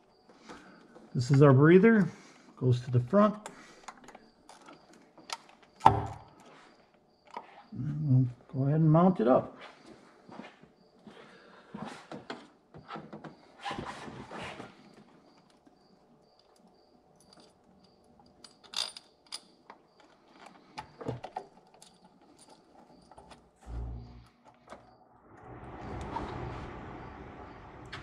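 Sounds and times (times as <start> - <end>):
metal bolts clicking and rattling: 16.6 - 23.5.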